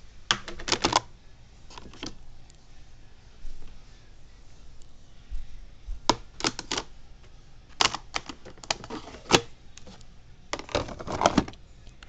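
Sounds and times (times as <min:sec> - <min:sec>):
handling clicks and knocks: 0:00.3 - 0:01.0, 0:06.1 - 0:06.9, 0:07.7 - 0:10.0, 0:10.6 - 0:11.6.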